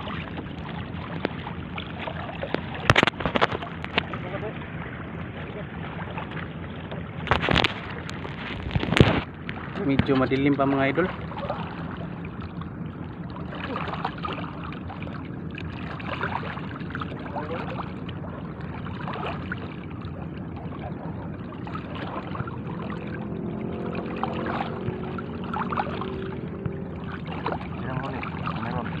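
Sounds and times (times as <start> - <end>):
water sloshing around wading legs: 0.0 - 29.0
small splashes of fishing net: 13.5 - 18.0, 18.6 - 20.0, 23.7 - 29.0.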